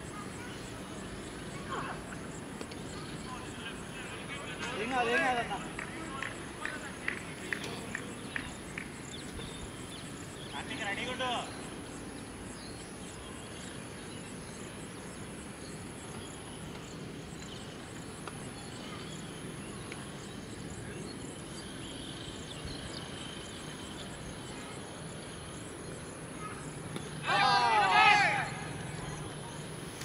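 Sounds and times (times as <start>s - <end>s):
background hiss: 0.0s - 30.0s
insects chirping: 0.0s - 30.0s.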